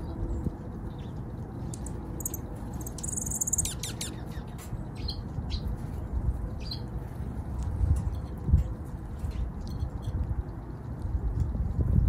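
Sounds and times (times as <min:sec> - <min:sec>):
songbirds calling: 0:00.0 - 0:07.3.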